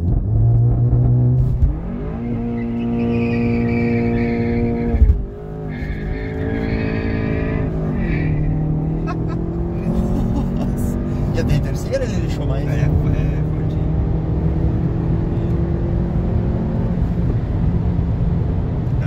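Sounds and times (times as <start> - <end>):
car engine revving high: 0.0 - 19.0
tyres squealing: 5.6 - 9.3.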